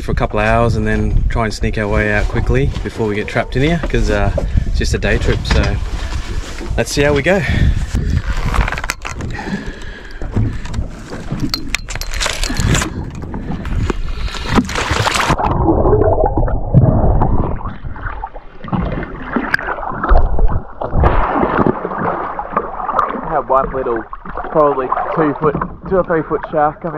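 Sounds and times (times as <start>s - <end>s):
water sloshing and splashing: 1.7s - 26.9s
underwater gurgling: 12.9s - 26.9s.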